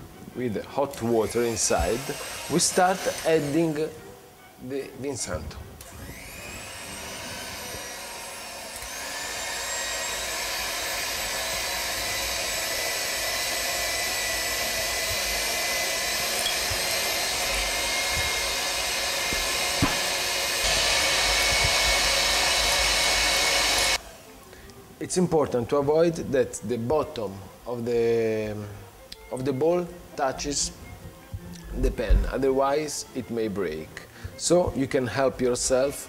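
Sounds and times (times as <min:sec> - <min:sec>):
electric hand mixer whining: 0:00.9 - 0:04.1, 0:05.5 - 0:24.8.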